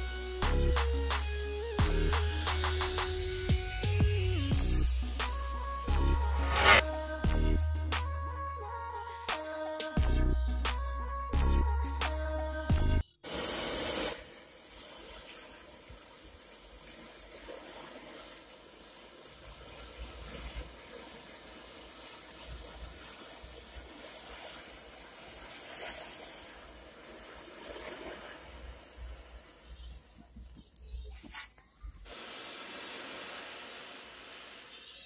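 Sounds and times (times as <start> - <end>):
match heads flaring hiss: 2.1 - 7.0, 13.2 - 29.8, 31.3 - 35.0
matchsticks burning hiss: 6.2 - 6.9, 13.2 - 29.8, 31.3 - 35.0.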